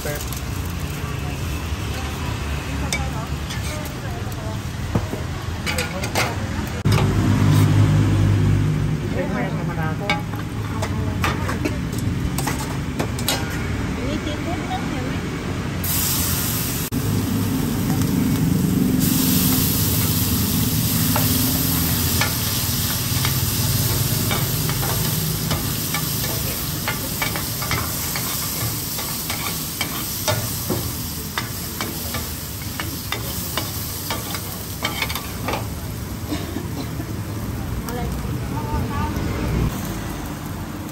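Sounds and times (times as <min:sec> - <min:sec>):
metal spatulas scraping pan: 0:03.4 - 0:03.9, 0:33.0 - 0:35.6
omelette sizzling in oil: 0:15.8 - 0:36.3.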